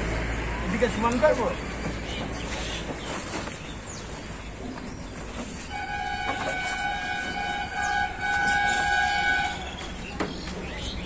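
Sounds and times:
long horn blast: 0:05.7 - 0:09.8.

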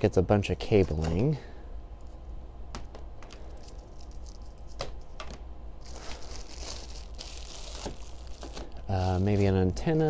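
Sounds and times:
packaging rustling: 0:05.8 - 0:09.6.

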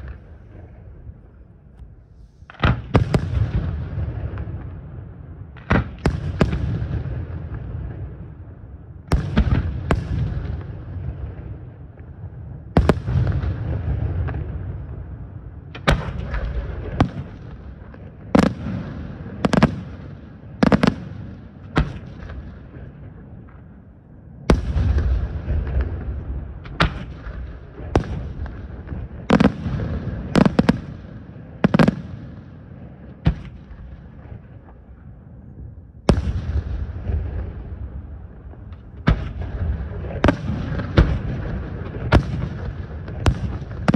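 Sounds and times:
low rumbling echo: 0:00.0 - 0:43.9
fireworks bursting: 0:15.7 - 0:23.7, 0:24.5 - 0:34.9, 0:36.1 - 0:43.9.

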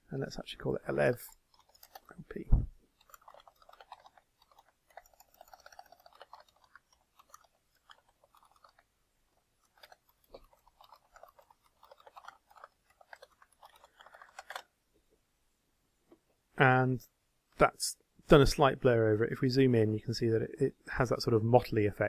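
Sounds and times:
keyboard typing: 0:01.3 - 0:02.2, 0:02.9 - 0:08.9, 0:09.6 - 0:14.7.

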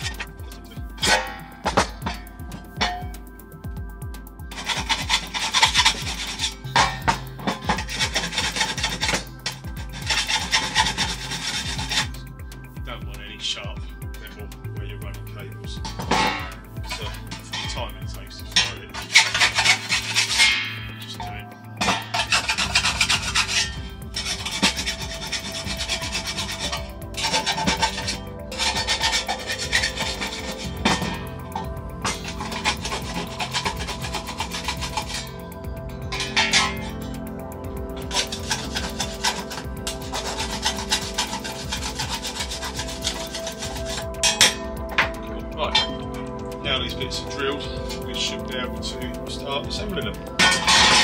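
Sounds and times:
hand file rasping on steel: 0:04.6 - 0:12.2, 0:15.9 - 0:17.8, 0:18.5 - 0:37.1, 0:38.0 - 0:46.0, 0:50.0 - 0:51.0.

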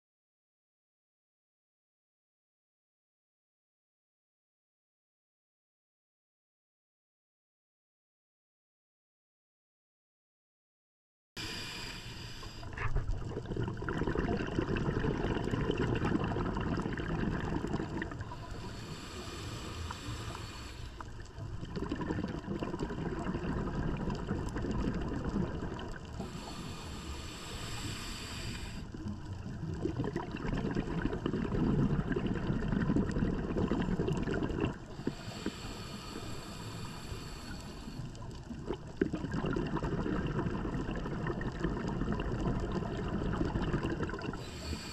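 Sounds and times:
regulator inhalation hiss: 0:11.4 - 0:12.8, 0:18.3 - 0:21.2, 0:26.2 - 0:29.0, 0:34.9 - 0:38.2, 0:44.4 - 0:44.9
exhaled air bubbling: 0:11.4 - 0:44.9.

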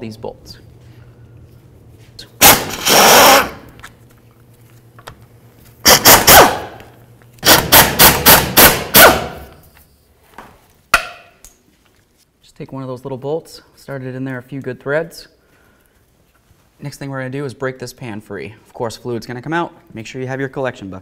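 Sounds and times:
pneumatic impact wrench hammering: 0:02.4 - 0:03.7, 0:05.8 - 0:06.8, 0:07.4 - 0:09.6.

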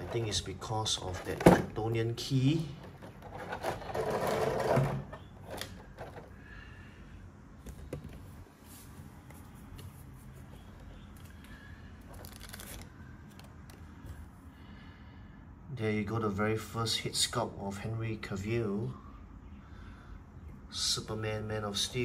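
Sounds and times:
plastic packaging crinkling: 0:12.1 - 0:13.8.

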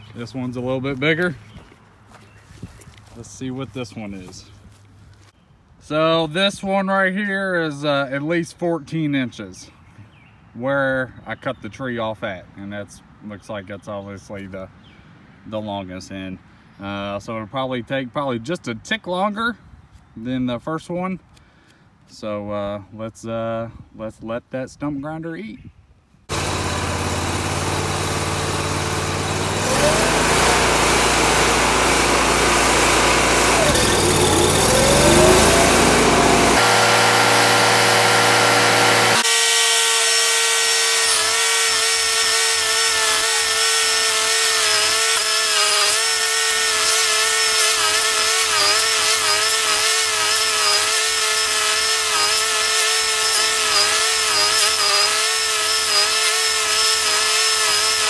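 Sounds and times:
cutter wheel grinding wood: 0:26.3 - 0:58.0
stump grinder engine running: 0:26.3 - 0:58.0.

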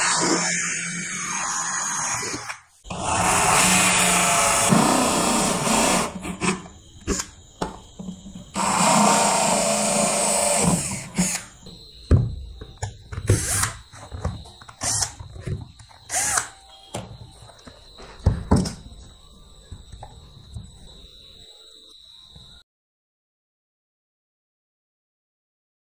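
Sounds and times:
drill cutting plastic: 0:00.0 - 0:07.4, 0:08.5 - 0:11.7, 0:13.2 - 0:17.0.

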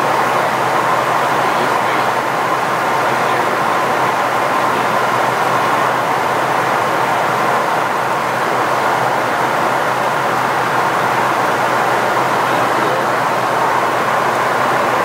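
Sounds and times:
cockpit airflow and jet engines: 0:00.0 - 0:15.0.

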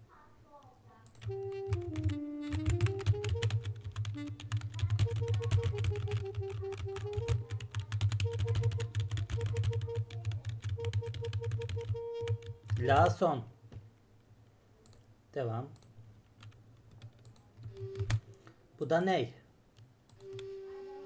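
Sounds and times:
computer keyboard keys clattering: 0:01.1 - 0:12.9, 0:16.4 - 0:18.2
double-reed melody: 0:01.3 - 0:07.6, 0:10.8 - 0:12.6.

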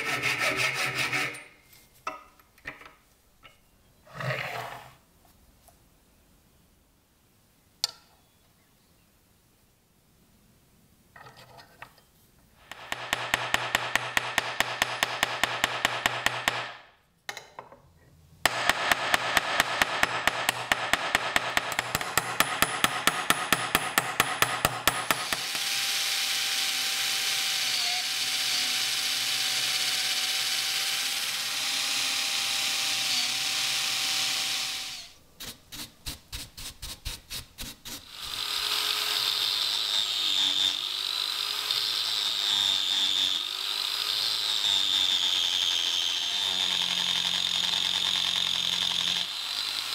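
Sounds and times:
small power tool running: 0:25.0 - 0:35.2, 0:38.0 - 0:49.9.

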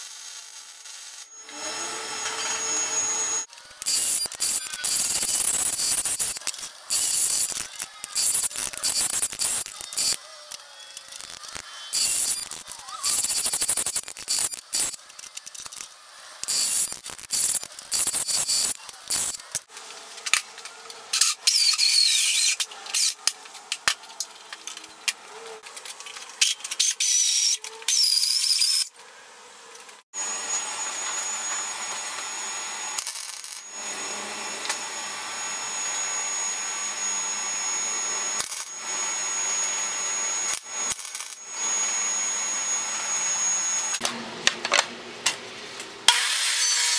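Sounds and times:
wire-feed welder crackling hiss: 0:00.0 - 0:01.4, 0:03.4 - 0:20.4, 0:32.9 - 0:33.8, 0:38.3 - 0:38.8, 0:40.4 - 0:41.5
drill press cutting steel: 0:01.3 - 0:10.2.

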